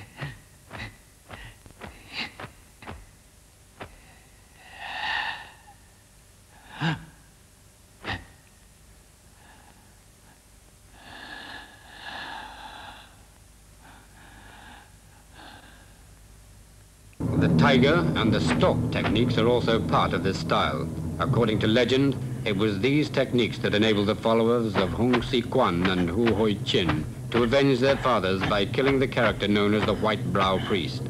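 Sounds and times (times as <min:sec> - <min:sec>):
man breathing hard and huffing: 0:00.0 - 0:03.0, 0:09.3 - 0:16.2
sharp snaps: 0:00.0 - 0:03.2.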